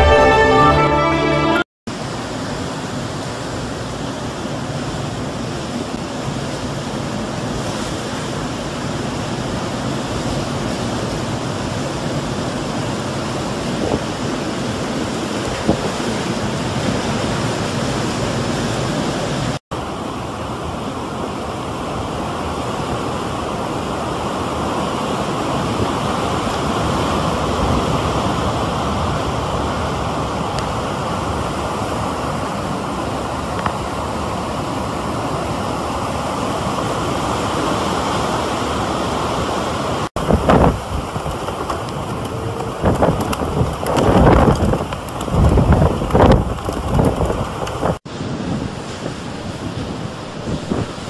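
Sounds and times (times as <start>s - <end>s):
surf breaking on a beach: 1.9s - 51.0s
wind buffeting the microphone: 6.9s - 19.5s, 40.2s - 51.0s.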